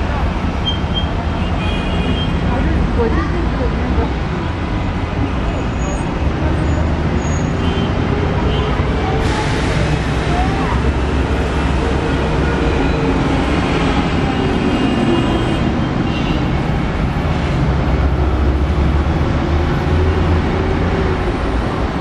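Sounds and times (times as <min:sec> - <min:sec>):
buses and cars passing: 0:00.0 - 0:22.0.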